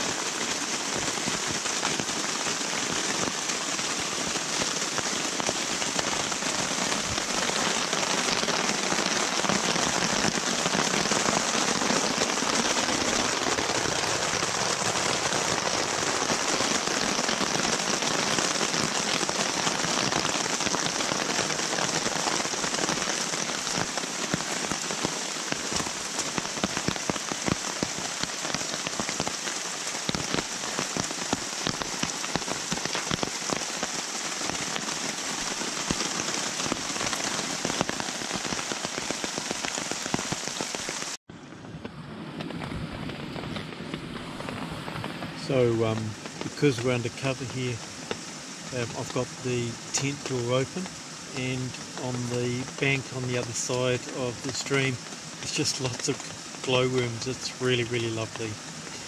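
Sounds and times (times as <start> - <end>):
rain pattering on a tarp: 0.0 - 59.0.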